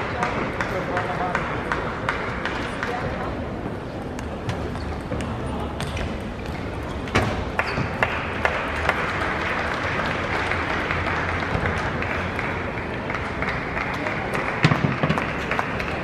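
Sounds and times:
crowd applause and cheering: 7.5s - 16.0s.

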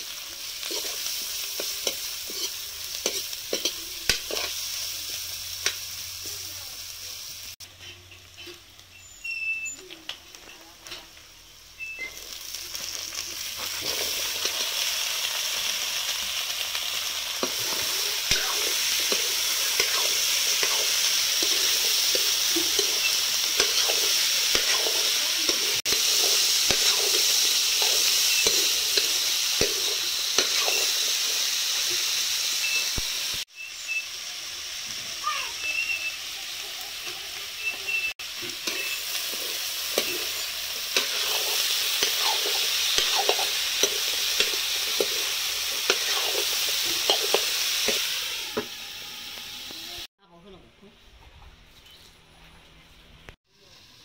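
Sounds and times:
seeds sizzling in oil: 0.0s - 50.1s, 53.3s - 54.0s
metal ladle scraping a pan: 0.6s - 4.6s, 38.4s - 48.8s.

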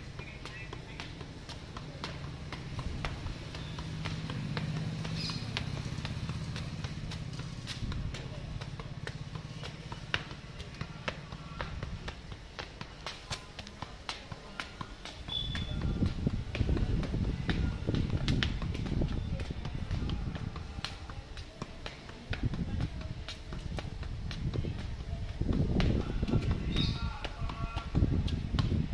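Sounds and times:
ball tapping against shoe: 0.0s - 28.9s.

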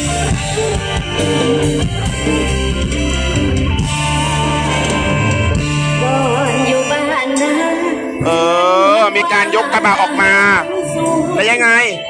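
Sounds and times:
live band music: 0.0s - 12.0s
vibrato melody line: 0.0s - 12.0s.

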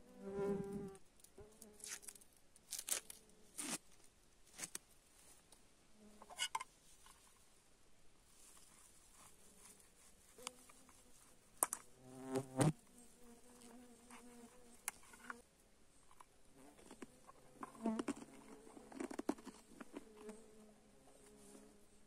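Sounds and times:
flies buzzing: 12.0s - 15.4s.

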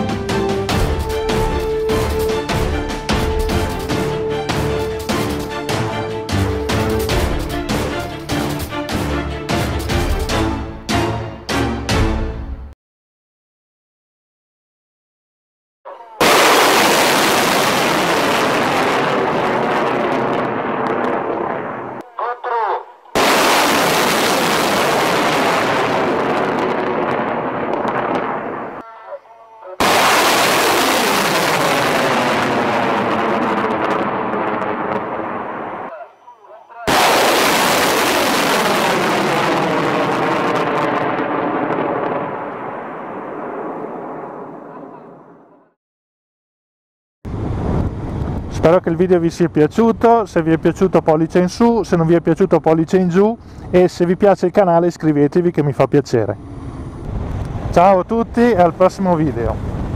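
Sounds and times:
missile launch blast: 16.2s - 22.0s, 23.2s - 28.7s, 29.8s - 35.9s, 36.9s - 44.6s
rocket roar rushing: 16.2s - 22.0s, 23.2s - 28.8s, 29.8s - 35.9s, 36.9s - 45.3s, 56.4s - 59.9s.

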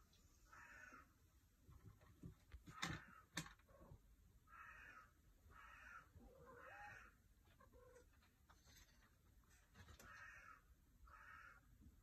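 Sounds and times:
crow cawing: 0.5s - 1.1s, 4.5s - 7.2s, 10.0s - 11.7s.

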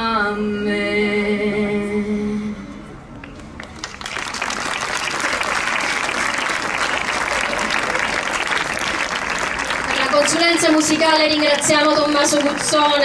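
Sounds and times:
audience applauding: 3.3s - 13.0s.

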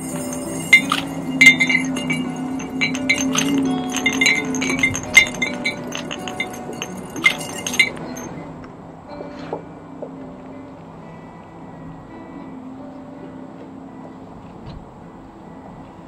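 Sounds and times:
glass crystals clinking into vase: 0.0s - 8.4s.

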